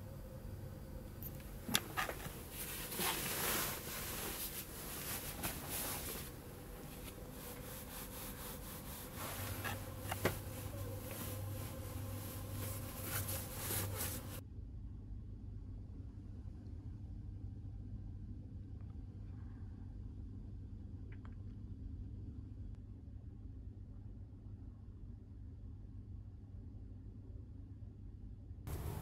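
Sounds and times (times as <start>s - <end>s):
bedding rustling: 1.1s - 14.4s, 28.7s - 29.0s.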